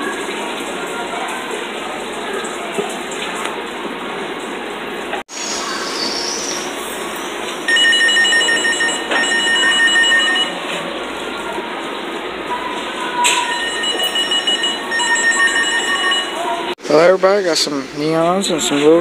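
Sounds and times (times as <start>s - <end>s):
store background noise: 0.0s - 19.0s
pulsing electronic alarm tone: 7.7s - 10.6s, 13.5s - 16.7s.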